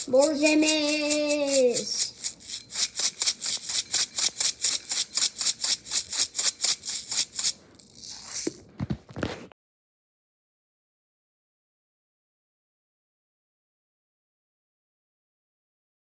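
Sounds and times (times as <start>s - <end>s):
sprinkles rattling in plastic container: 0.0s - 8.6s.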